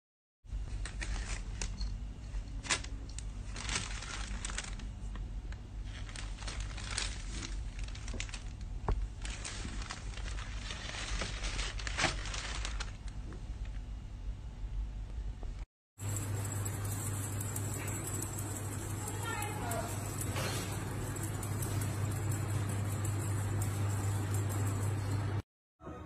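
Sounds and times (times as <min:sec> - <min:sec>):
steady low hum: 0:00.5 - 0:25.4
plastic bag crinkling: 0:02.7 - 0:05.2, 0:05.8 - 0:13.2.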